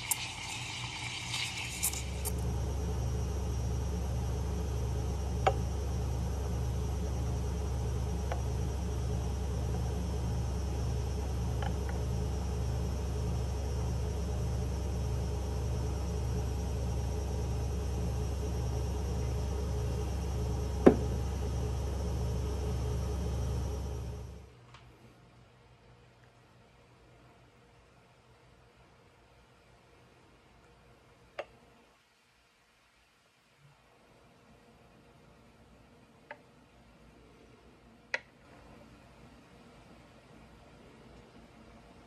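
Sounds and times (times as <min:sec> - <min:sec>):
low machine hum: 0:00.0 - 0:25.6.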